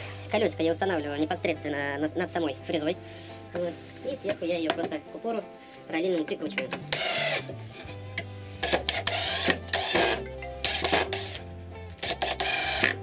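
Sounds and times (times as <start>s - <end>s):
background music: 0.0s - 13.0s
cordless drill driving screws: 6.8s - 7.5s, 8.6s - 11.4s, 12.0s - 13.0s.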